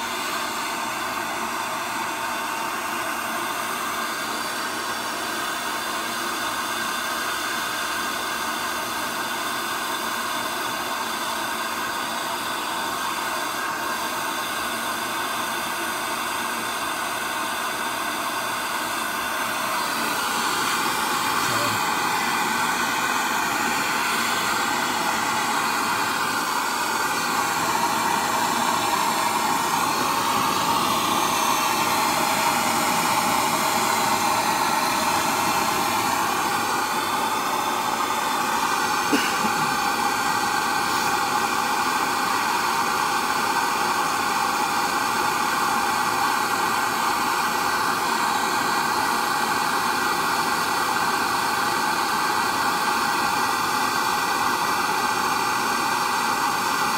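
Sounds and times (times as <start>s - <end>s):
gas torch hissing: 16.4s - 56.9s.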